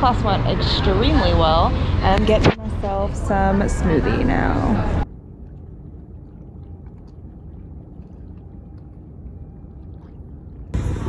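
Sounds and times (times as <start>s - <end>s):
low rumble of open water: 0.0s - 11.0s
water lapping and splashing: 3.2s - 11.0s.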